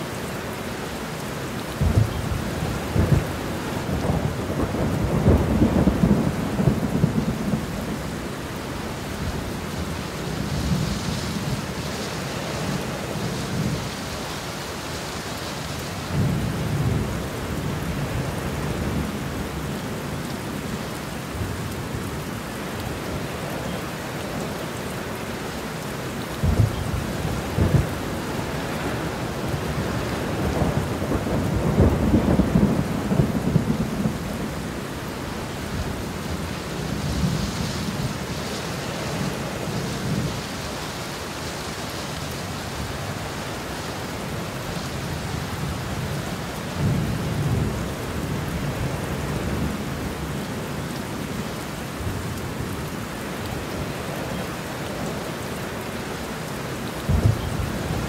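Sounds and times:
heavy rain pouring: 0:00.0 - 0:58.0
thunder rumbling: 0:01.8 - 0:07.9, 0:26.4 - 0:34.7, 0:57.0 - 0:58.0.

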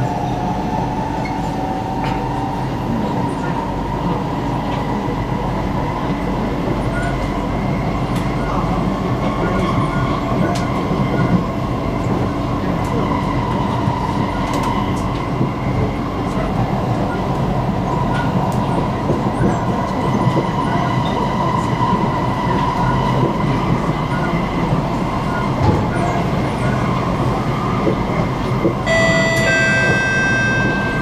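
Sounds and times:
train wheels rumbling on rails: 0:00.0 - 0:31.0
electronic chime: 0:28.9 - 0:31.0
onboard announcement: 0:28.9 - 0:31.0.

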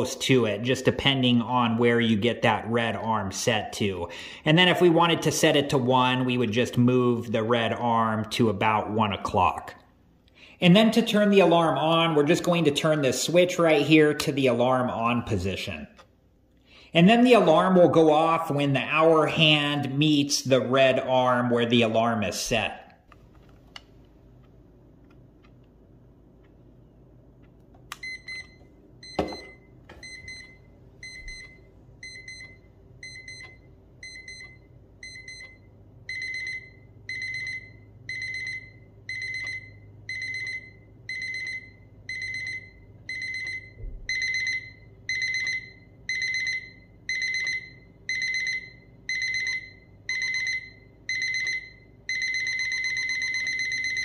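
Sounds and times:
alarm clock beeping: 0:28.0 - 0:54.0
knock: 0:29.2 - 0:29.5.

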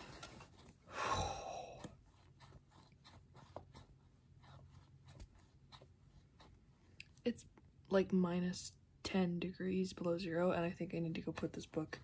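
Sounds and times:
person exhaling: 0:00.9 - 0:01.9.

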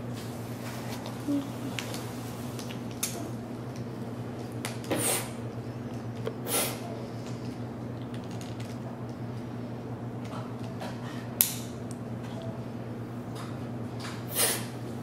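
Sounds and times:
lighter gas hissing: 0:14.3 - 0:14.8.

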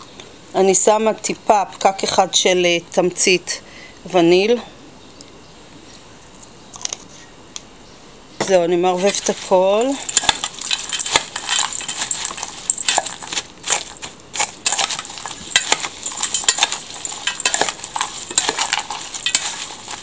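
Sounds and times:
metal spoon clinking in bowl: 0:09.0 - 0:20.0.

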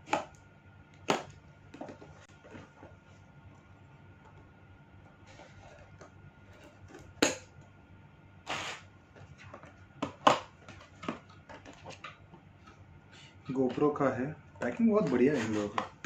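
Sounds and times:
short scraping noise: 0:08.5 - 0:08.9.

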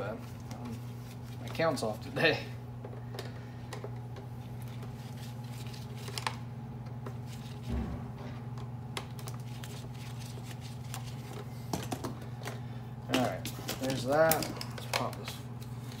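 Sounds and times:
steady low hum: 0:00.0 - 0:16.0
soft thump: 0:07.7 - 0:08.2.

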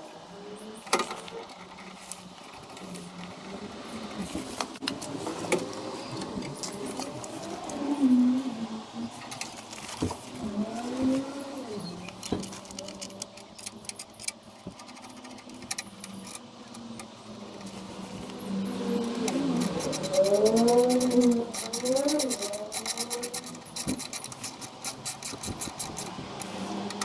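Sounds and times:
clicks of screws and tool: 0:12.0 - 0:17.7, 0:19.2 - 0:27.0.

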